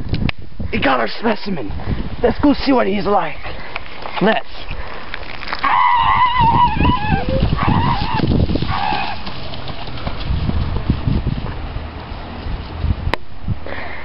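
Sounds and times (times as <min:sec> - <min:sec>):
person yelling: 0:05.6 - 0:08.2
low rumble on microphone: 0:06.0 - 0:13.7.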